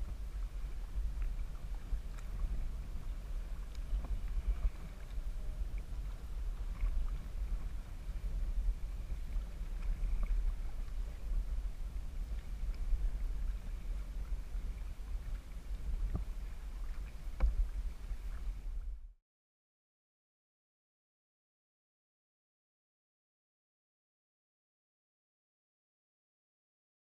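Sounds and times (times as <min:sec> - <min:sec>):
kayak paddle strokes in water: 0:00.0 - 0:19.1
wind rumble on microphone: 0:00.0 - 0:19.2.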